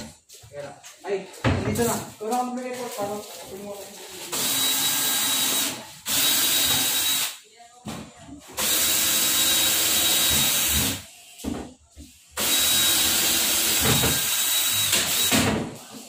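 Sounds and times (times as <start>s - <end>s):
power drill running: 4.3s - 7.3s, 8.6s - 11.0s, 12.4s - 15.4s.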